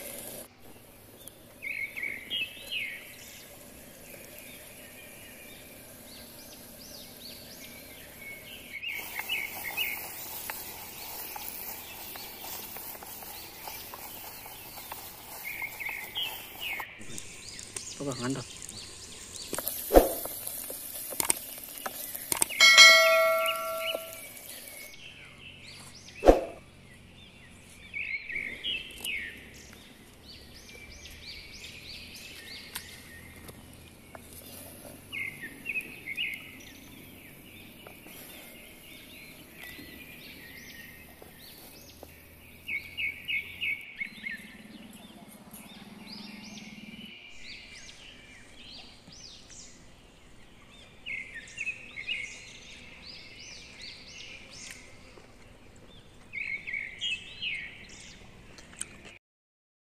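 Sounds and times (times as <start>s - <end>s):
birds chirping and calling: 1.0s - 20.4s, 21.3s - 55.2s
ringing clink: 22.6s - 24.3s.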